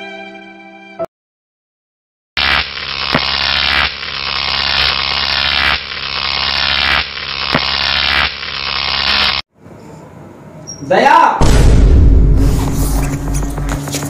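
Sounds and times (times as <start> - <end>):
electrical buzzing and crackling: 2.4 - 9.4.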